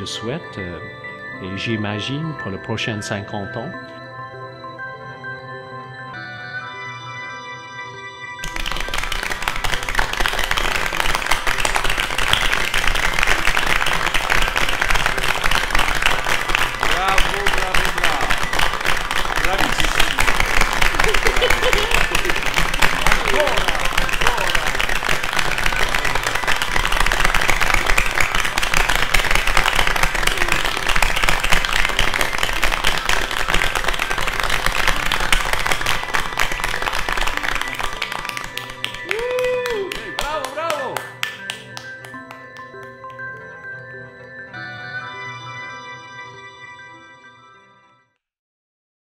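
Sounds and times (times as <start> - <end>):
crowd applauding: 8.4 - 44.1.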